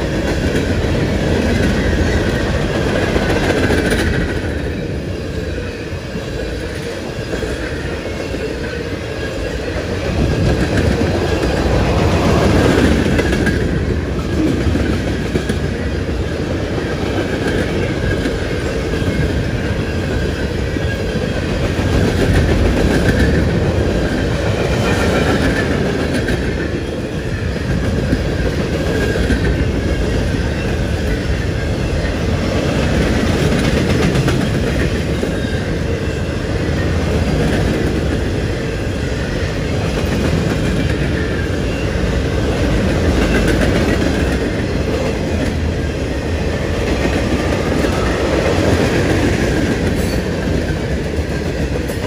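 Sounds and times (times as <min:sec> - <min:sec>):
freight train wheels rumbling: 0:00.0 - 0:52.0.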